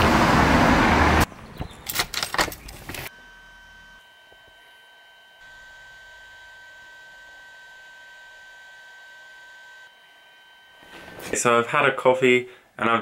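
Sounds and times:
high electrical whine: 3.0s - 12.1s.

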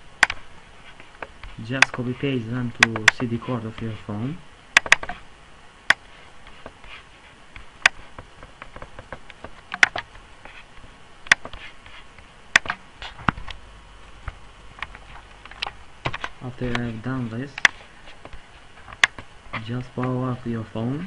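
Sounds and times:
computer mouse clicking: 0.2s - 0.4s, 2.8s - 3.8s, 4.8s - 5.2s, 7.8s - 10.1s, 12.5s - 13.6s.

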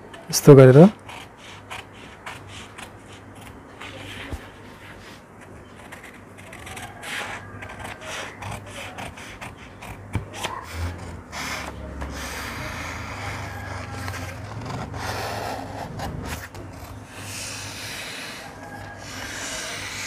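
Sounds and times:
scissors cutting paper: 5.8s - 20.0s.

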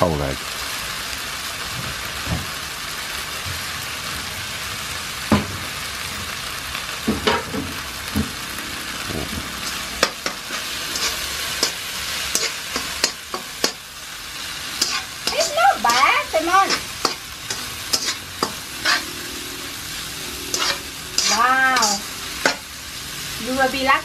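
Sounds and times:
rice sizzling in a wok: 0.0s - 24.0s
spatula scraping a wok: 8.8s - 23.8s.

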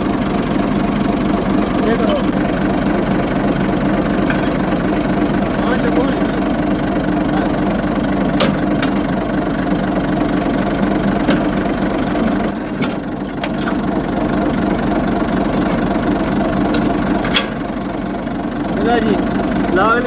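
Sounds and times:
tractor engine idling: 0.0s - 20.0s
metallic clicks of cultivator pins: 4.2s - 4.6s.

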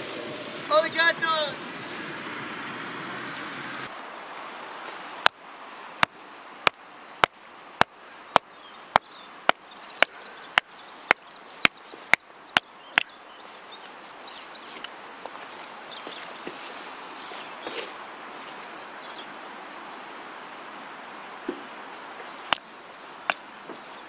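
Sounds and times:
axe chopping kindling: 5.2s - 5.4s, 6.0s - 13.1s, 22.5s - 23.4s.

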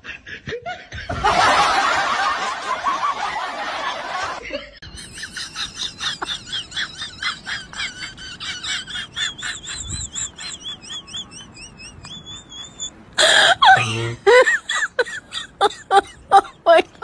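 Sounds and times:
high-pitched giggling: 4.8s - 17.0s
person crying out: 13.2s - 14.3s.

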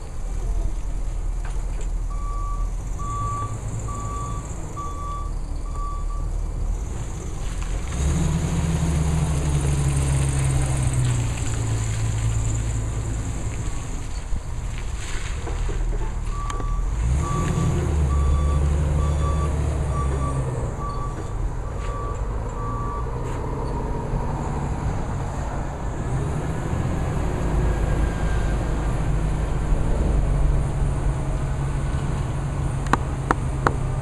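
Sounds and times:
reversing alarm beeps: 2.1s - 6.3s, 16.3s - 23.1s
forklift engine running: 15.9s - 25.1s.

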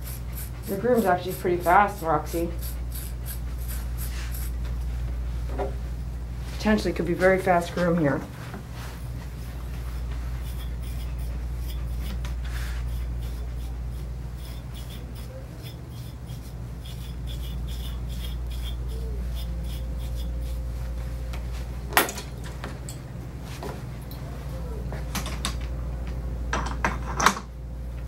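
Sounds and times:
comb strokes through fur: 0.0s - 5.1s, 7.2s - 21.8s
steady low hum: 0.0s - 28.0s.

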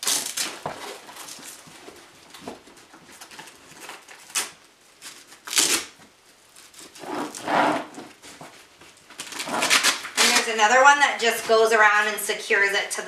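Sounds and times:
velcro ripping: 0.0s - 1.6s, 3.4s - 8.2s, 9.2s - 10.7s.

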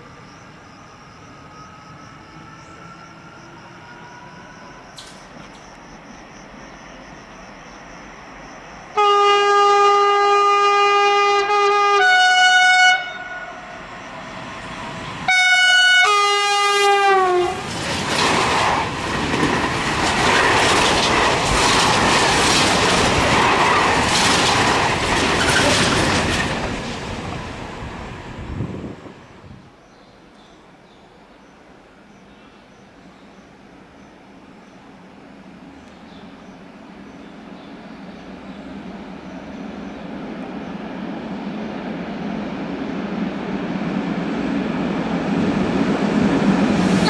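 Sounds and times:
train wagons rumbling over rails: 0.0s - 29.8s, 33.4s - 47.0s
train horn blasts: 9.0s - 13.9s, 15.3s - 17.7s.

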